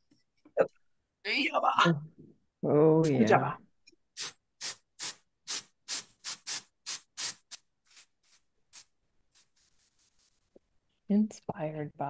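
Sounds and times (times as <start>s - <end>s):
compressed air duster hissing: 4.2s - 10.0s.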